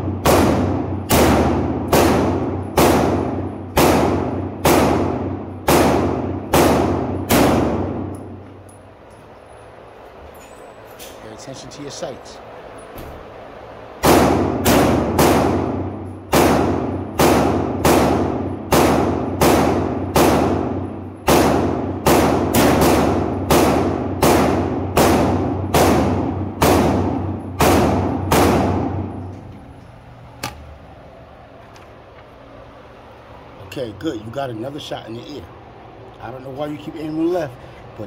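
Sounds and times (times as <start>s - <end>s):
pistol gunshots echoing indoors: 0.0s - 8.5s, 14.0s - 29.4s.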